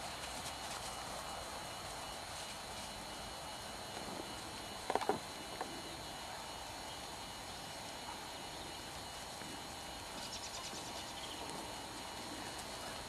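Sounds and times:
background hiss: 0:00.0 - 0:13.0
muffled horse hoofbeats trotting: 0:08.0 - 0:13.0.

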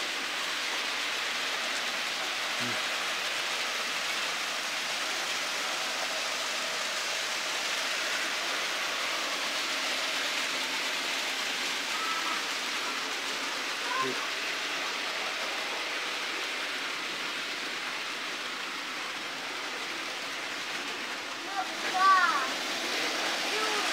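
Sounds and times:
model trains running on track: 0:00.0 - 0:23.9.

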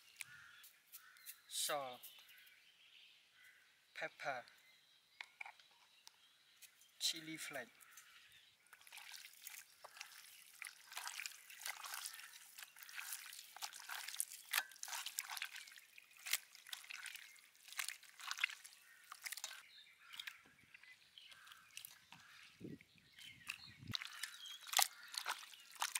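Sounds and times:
wet squelching and slapping: 0:08.7 - 0:25.9.

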